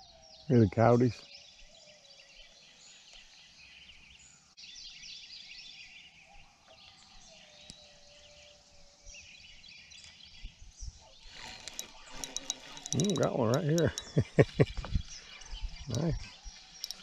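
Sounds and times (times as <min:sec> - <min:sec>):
coyotes yipping and howling: 0:06.2 - 0:09.6, 0:10.8 - 0:14.2, 0:15.1 - 0:17.0.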